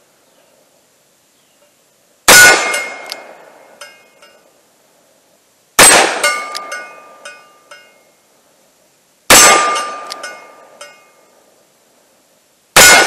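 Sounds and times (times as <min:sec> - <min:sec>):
steel target ringing: 0:02.3 - 0:04.4, 0:05.8 - 0:08.2, 0:09.3 - 0:11.3, 0:12.8 - 0:13.0.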